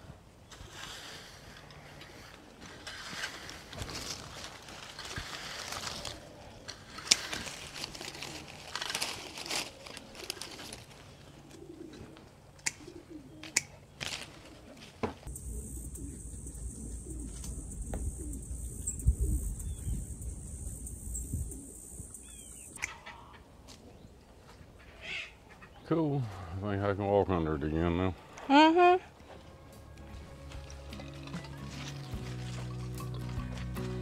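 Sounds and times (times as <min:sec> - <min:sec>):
rake scratching over dirt: 0:00.4 - 0:11.5, 0:30.0 - 0:34.0
low rumble: 0:15.3 - 0:22.2
steady high hiss: 0:15.3 - 0:22.8
bird chirps: 0:15.3 - 0:23.4.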